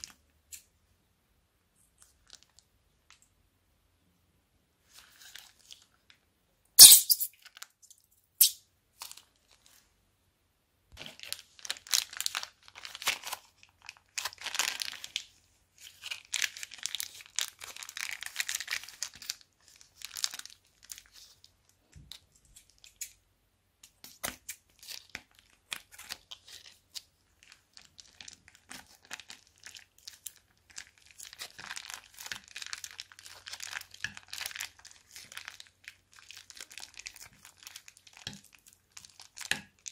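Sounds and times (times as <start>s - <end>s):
plastic bag crinkling and tearing: 11.0s - 21.5s, 24.7s - 39.9s.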